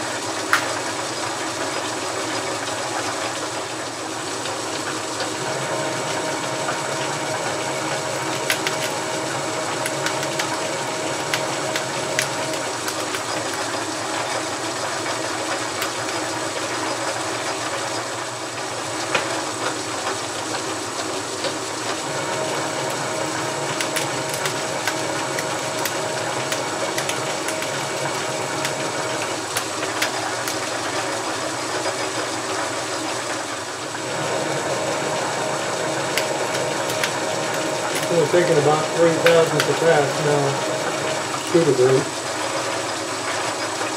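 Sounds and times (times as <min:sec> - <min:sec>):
metal lathe whining: 0:05.2 - 0:17.7, 0:21.8 - 0:43.8.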